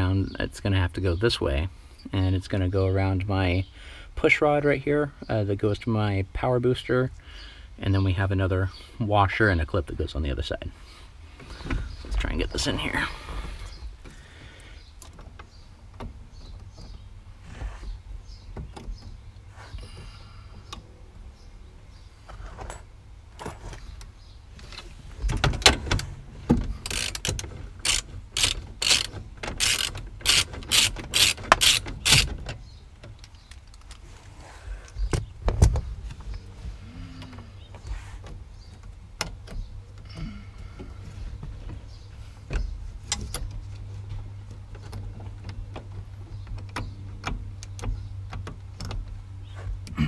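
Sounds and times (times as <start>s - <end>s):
metallic clicks and rattles: 22.6s - 34.0s.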